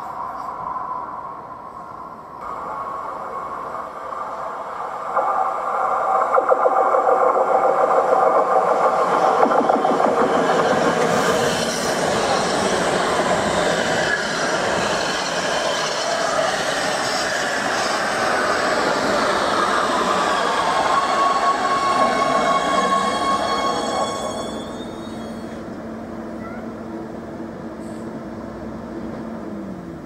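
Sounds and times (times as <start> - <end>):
high whine of braking train: 0.0 - 30.0
train wheels rattling on track: 2.5 - 25.9.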